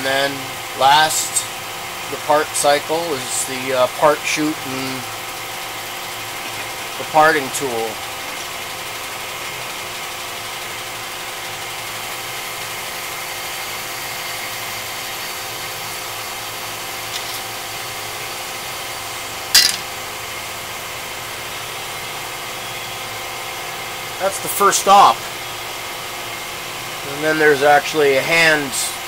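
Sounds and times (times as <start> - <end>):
lathe machine hum: 0.0 - 29.0
sharp metallic clank: 19.5 - 20.0.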